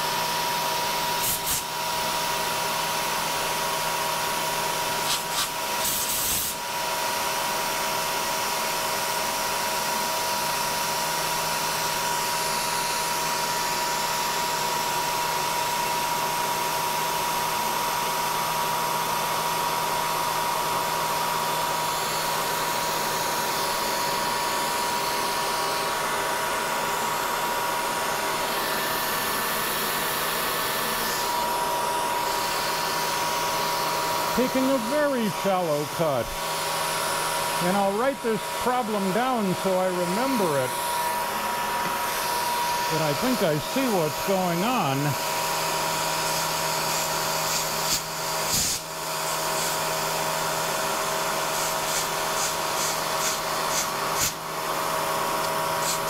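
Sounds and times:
compressed air hissing: 0:01.2 - 0:01.8, 0:05.0 - 0:06.6, 0:32.1 - 0:56.0
milling machine cutting aluminum: 0:36.6 - 0:56.0.

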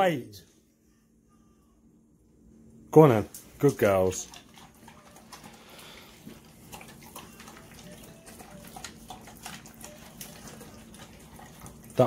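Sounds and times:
dog crunching dry kibble: 0:04.0 - 0:12.0.

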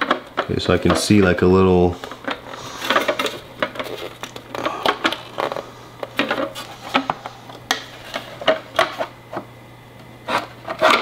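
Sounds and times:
plastic case clicking and scraping: 0:02.0 - 0:09.5, 0:10.2 - 0:11.0.

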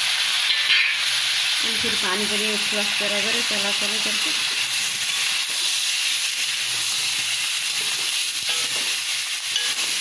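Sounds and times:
meat sizzling in a wok: 0:00.0 - 0:10.0
spatula stirring: 0:05.1 - 0:10.0.

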